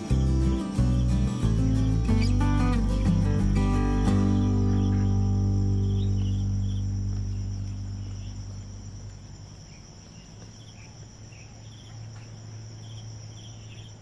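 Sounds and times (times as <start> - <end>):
background music: 0.0 - 9.1
insects droning: 0.0 - 14.0
short insect chirps: 0.0 - 14.0.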